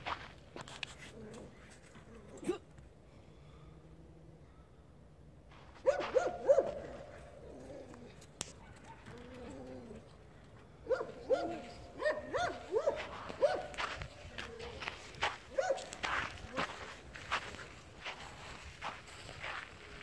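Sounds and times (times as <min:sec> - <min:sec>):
distant dog barking: 0:05.8 - 0:07.9, 0:08.5 - 0:10.0, 0:10.8 - 0:16.9.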